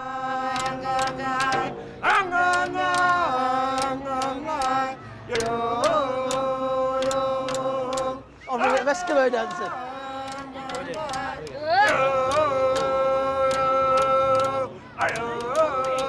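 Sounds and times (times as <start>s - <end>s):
group chanting long notes: 0.0s - 16.0s
frame drums beating: 1.0s - 3.1s.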